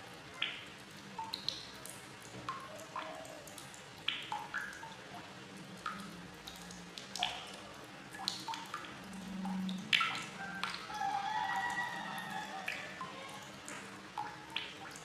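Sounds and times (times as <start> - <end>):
water drops plinking: 0.3 - 1.8, 2.4 - 5.0, 8.2 - 11.8, 12.6 - 15.0.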